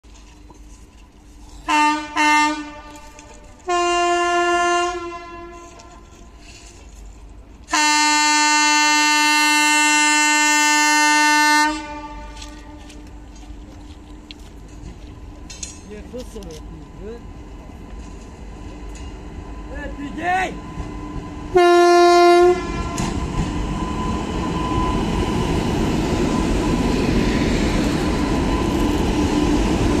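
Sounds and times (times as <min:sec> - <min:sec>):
train rumble and rail noise: 0:00.0 - 0:30.0
locomotive horn blasts: 0:01.7 - 0:06.8, 0:07.7 - 0:13.0, 0:21.5 - 0:23.2.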